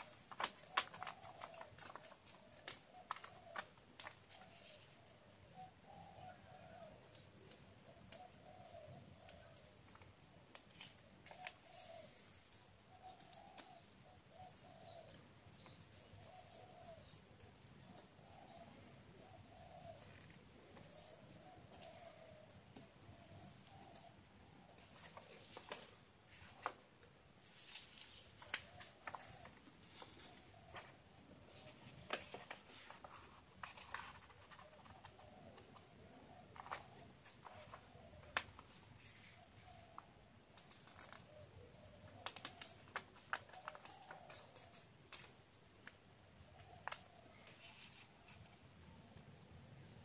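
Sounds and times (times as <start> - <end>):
paper crinkling as folded: 0.0 - 4.9, 24.8 - 26.8, 27.5 - 30.9, 31.5 - 35.2, 40.6 - 41.2, 42.2 - 45.3.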